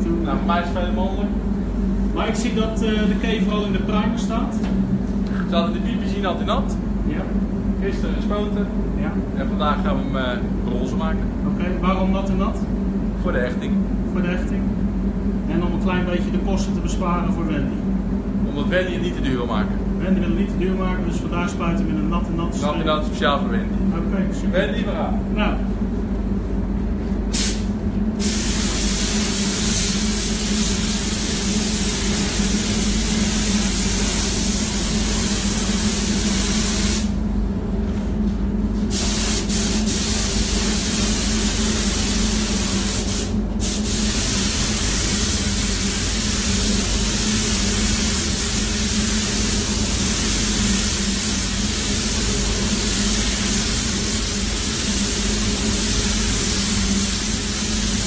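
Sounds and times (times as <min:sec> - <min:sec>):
paint spray gun hissing: 0:27.3 - 0:37.1, 0:38.9 - 0:58.0.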